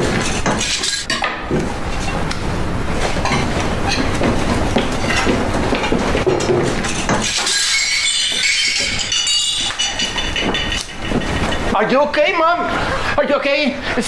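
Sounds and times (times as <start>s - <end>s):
dishes and cutlery clattering: 0.0s - 2.2s, 3.0s - 11.8s
dishes crashing and breaking: 5.0s - 11.7s.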